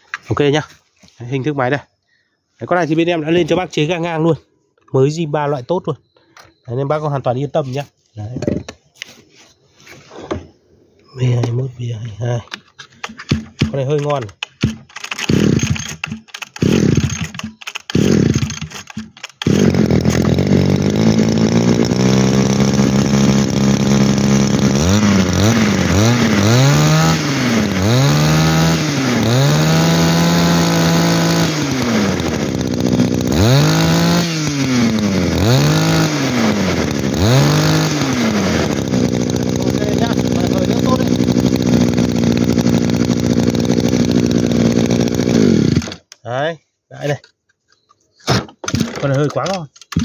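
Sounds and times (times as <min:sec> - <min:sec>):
brush cutter engine revving: 0:12.5 - 0:46.2, 0:48.7 - 0:50.0
brush cutter pull-start: 0:12.5 - 0:46.2, 0:48.6 - 0:50.0.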